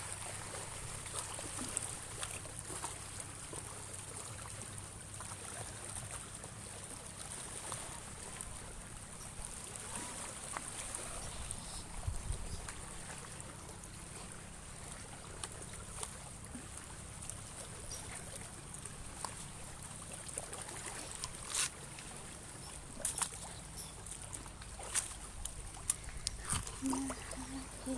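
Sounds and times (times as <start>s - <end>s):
seawater lapping among rocks: 0.0s - 27.9s
wind on microphone: 11.1s - 12.8s, 26.1s - 27.9s.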